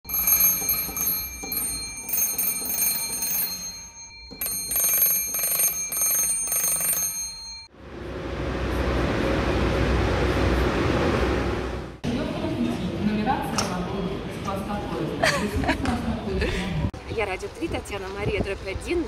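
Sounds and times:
electric bell ringing in bursts: 0:00.1 - 0:07.7
low hum of railway station: 0:07.1 - 0:19.0.

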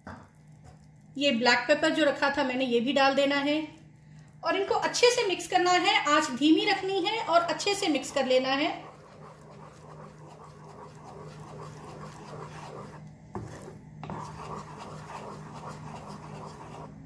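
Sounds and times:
low steady hum: 0:00.0 - 0:17.0
spatula scraping a pan: 0:07.7 - 0:17.0.

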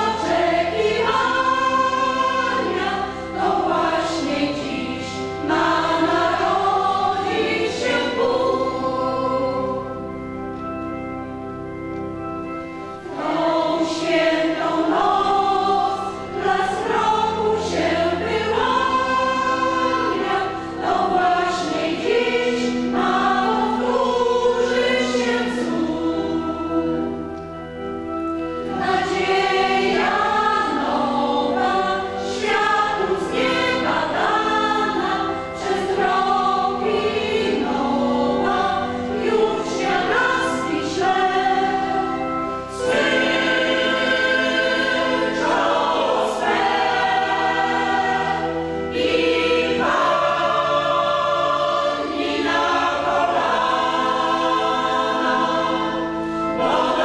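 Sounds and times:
mixed choir singing carol: 0:00.0 - 0:57.0.

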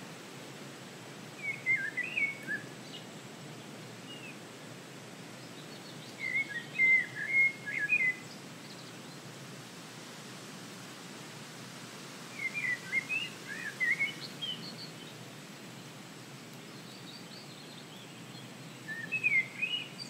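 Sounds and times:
steady background hiss: 0:00.0 - 0:20.0
songbird singing: 0:01.4 - 0:04.4, 0:05.3 - 0:09.4, 0:12.3 - 0:20.0.

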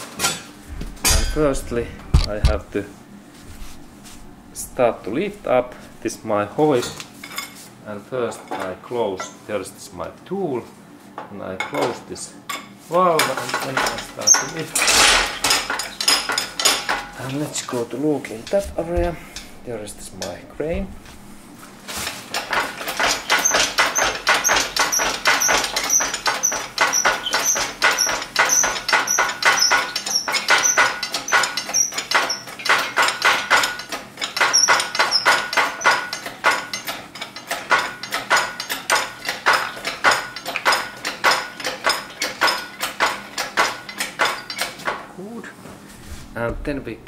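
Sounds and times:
hand pump clicking and squeaking: 0:13.6 - 0:17.4, 0:22.3 - 0:44.8.

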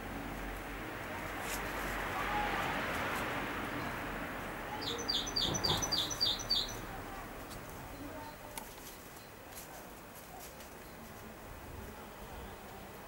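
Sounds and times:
outdoor background hiss: 0:00.0 - 0:13.0
small bird chirping: 0:04.7 - 0:06.9.

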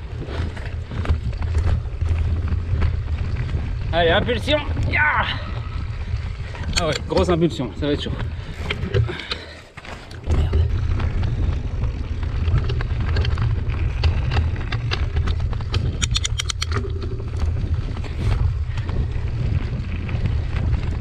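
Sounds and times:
bike rattling over bumps: 0:00.0 - 0:21.0
wind buffeting microphone: 0:00.0 - 0:21.0
quick run of sharp clicks: 0:12.6 - 0:17.6.

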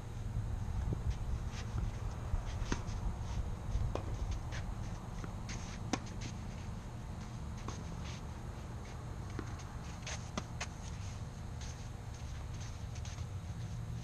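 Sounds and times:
wind rumble on microphone: 0:00.0 - 0:05.2
shoes scuffing on court: 0:01.1 - 0:14.0
tennis ball bouncing: 0:03.9 - 0:06.4, 0:09.2 - 0:10.9.

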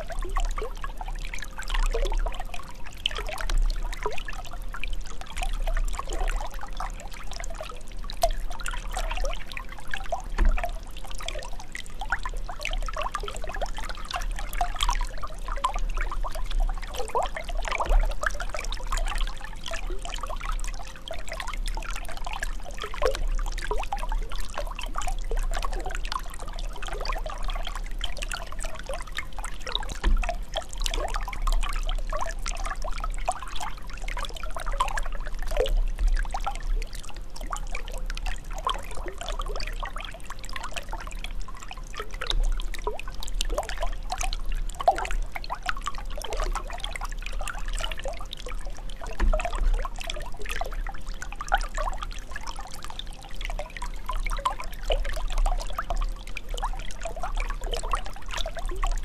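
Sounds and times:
water trickling and gurgling: 0:00.0 - 0:59.0.

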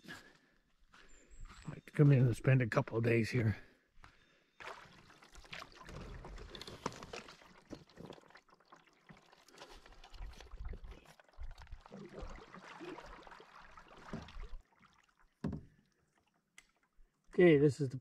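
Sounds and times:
canoe paddle strokes in water: 0:04.6 - 0:15.8
water dripping off paddle: 0:04.6 - 0:17.2.

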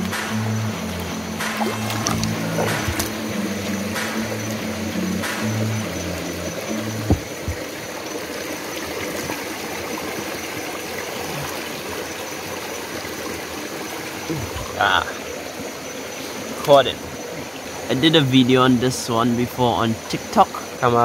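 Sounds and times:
low background music: 0:00.0 - 0:07.8
stream trickling over stones: 0:00.0 - 0:21.0
hand moving through water: 0:01.4 - 0:04.3, 0:06.6 - 0:07.8
knock: 0:07.0 - 0:07.6.

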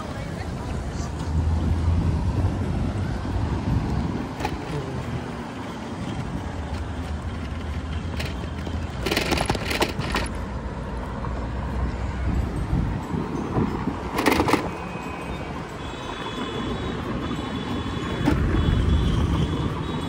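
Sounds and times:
traffic: 0:00.0 - 0:20.0
wind rumble on microphone: 0:00.5 - 0:04.9, 0:12.1 - 0:14.4
clattering: 0:07.3 - 0:10.3.

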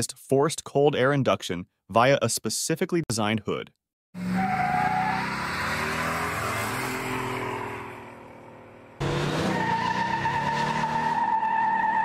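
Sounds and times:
car engine revving hard: 0:04.2 - 0:11.2.

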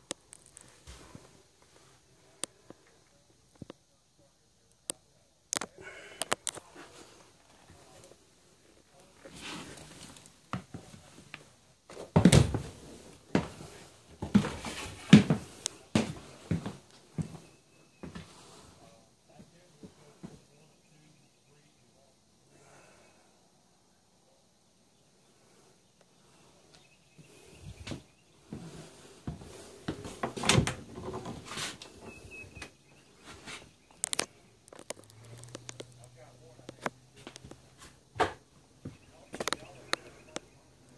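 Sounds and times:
footsteps on wooden stairs: 0:11.9 - 0:18.4, 0:27.2 - 0:32.3.

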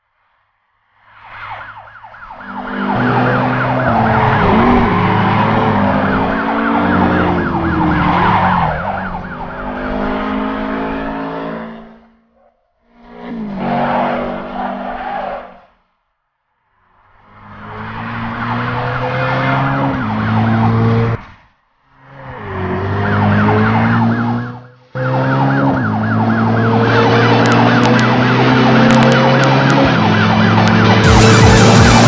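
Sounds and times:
police sirens yelping: 0:01.5 - 0:11.2, 0:18.2 - 0:21.1, 0:22.8 - 0:32.0
car engines revving: 0:02.2 - 0:12.2, 0:12.9 - 0:15.4, 0:17.2 - 0:21.4, 0:22.0 - 0:32.0.

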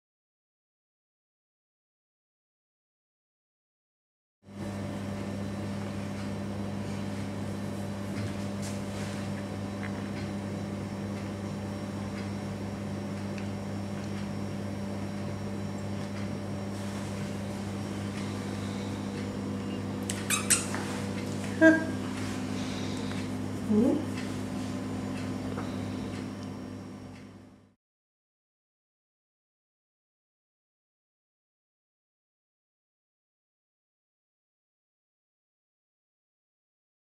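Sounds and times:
low electrical hum: 0:04.5 - 0:27.8.

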